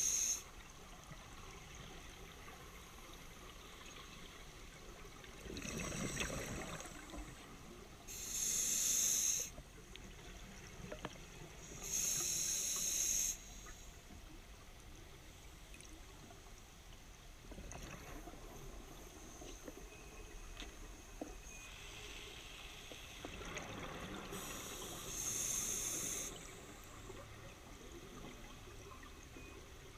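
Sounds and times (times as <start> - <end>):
faint underwater hiss: 0.0 - 16.8, 17.7 - 29.6
regulator hissing and bubbling: 8.0 - 9.6, 11.8 - 13.7, 24.4 - 26.9.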